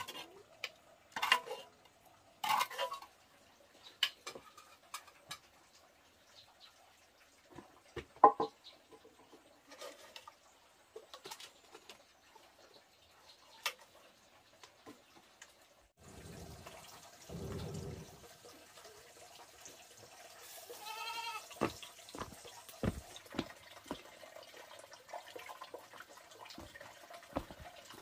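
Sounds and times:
running water: 0:00.0 - 0:28.0
objects knocking and clinking: 0:21.6 - 0:24.0, 0:27.3 - 0:28.0.

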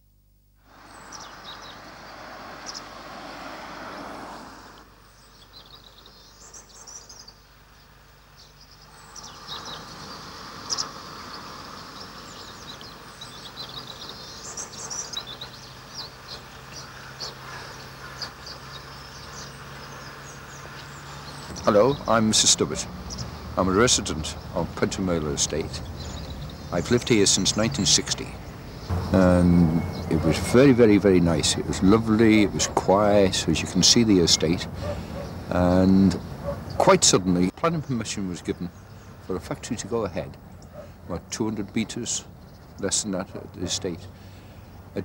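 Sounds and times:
vehicle passing: 0:00.7 - 0:05.4, 0:09.0 - 0:14.4, 0:15.1 - 0:37.5
small birds chirping: 0:00.7 - 0:45.0.

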